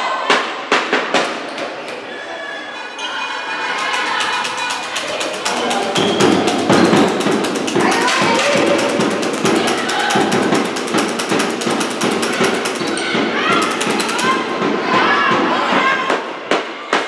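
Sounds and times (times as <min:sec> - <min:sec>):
voices calling out: 0:01.7 - 0:16.4
claps and knocks echoing: 0:03.7 - 0:17.0.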